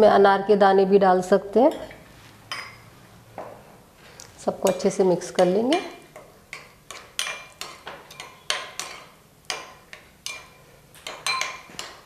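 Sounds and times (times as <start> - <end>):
spoon clinking against glass bowl: 1.7 - 2.9, 5.7 - 12.0.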